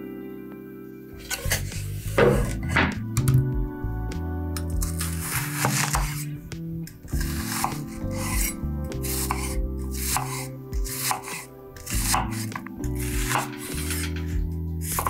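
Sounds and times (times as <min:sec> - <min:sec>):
knife slicing onion on board: 0:04.8 - 0:06.2, 0:07.2 - 0:14.3.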